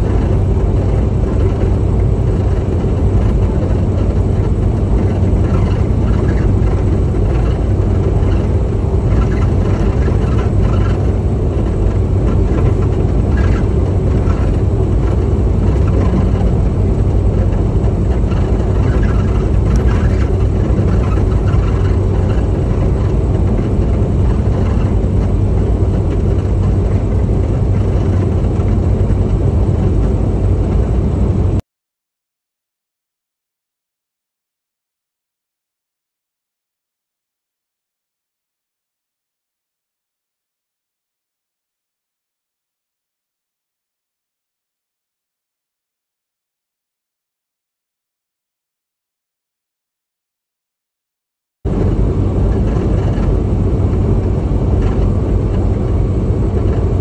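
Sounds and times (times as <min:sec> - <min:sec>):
truck engine drone: 0:00.0 - 0:31.6, 0:51.7 - 0:57.0
tyre and road noise: 0:00.0 - 0:31.6, 0:51.7 - 0:57.0.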